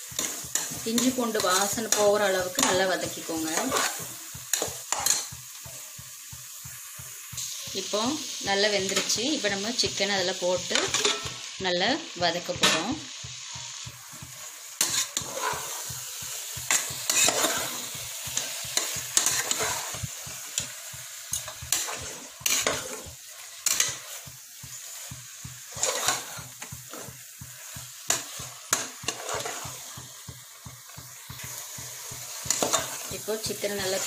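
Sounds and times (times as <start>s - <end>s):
chicken sizzling in pot: 0.0s - 34.0s
spoon scraping and knocking pot: 3.6s - 5.4s, 16.7s - 17.9s, 25.7s - 27.0s, 32.4s - 33.0s.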